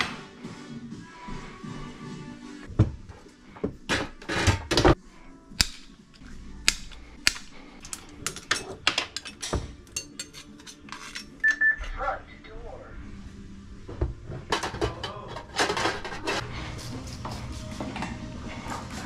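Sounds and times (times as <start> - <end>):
metal tools clicking and clanking: 7.2 - 11.7, 14.5 - 16.4.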